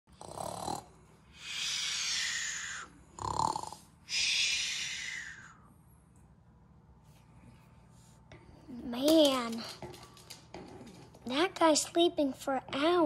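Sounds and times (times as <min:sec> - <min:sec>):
child making snoring noises: 0:00.1 - 0:05.4.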